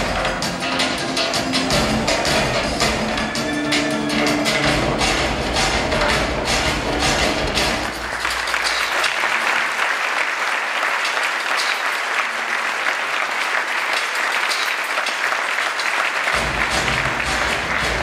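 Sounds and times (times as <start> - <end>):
backing music: 0.0 - 9.2, 16.2 - 18.0
audience applauding: 7.5 - 18.0.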